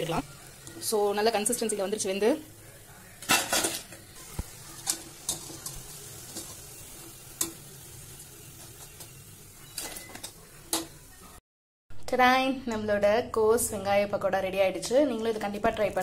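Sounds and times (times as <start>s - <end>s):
deep-frying sizzle in hot oil: 0.0s - 11.4s.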